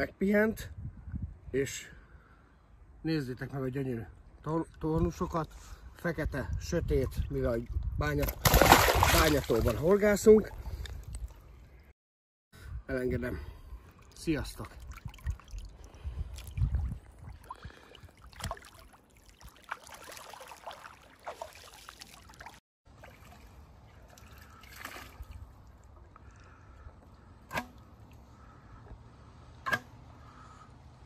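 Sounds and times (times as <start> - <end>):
water sloshing and trickling: 7.0 - 11.9, 13.7 - 26.8.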